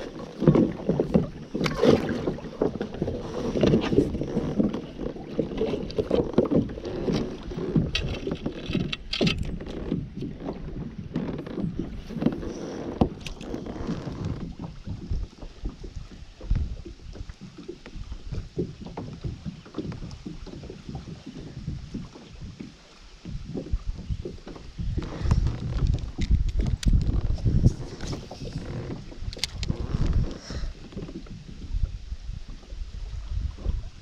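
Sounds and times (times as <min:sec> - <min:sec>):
knocks in boat: 0:00.0 - 0:31.4
water sloshing against boat hull: 0:00.0 - 0:34.0
wind on microphone: 0:00.0 - 0:34.0.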